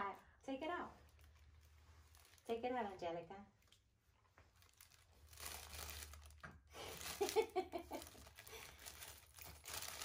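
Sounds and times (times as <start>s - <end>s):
cellophane bag crinkling: 1.0s - 2.8s, 4.5s - 10.0s.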